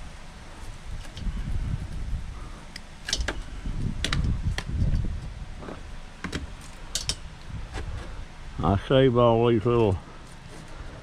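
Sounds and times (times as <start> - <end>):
steady low rumble: 0.0 - 11.0
metal clicks and clinks: 6.8 - 7.3.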